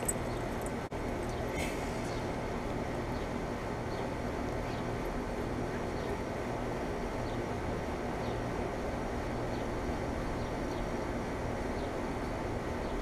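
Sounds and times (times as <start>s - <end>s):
heat pump hum with fan noise: 0.0s - 13.0s.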